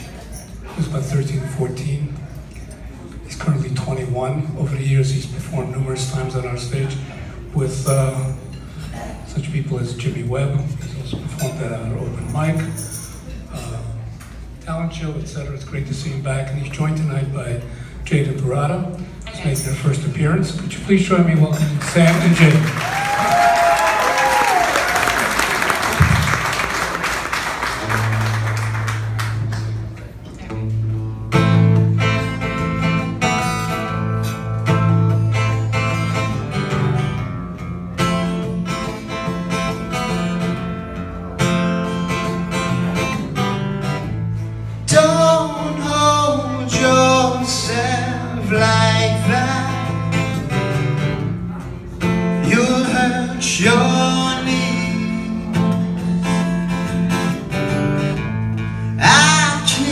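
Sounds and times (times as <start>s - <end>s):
acoustic guitar playing: 19.0s - 59.9s
audience applause: 21.7s - 30.0s.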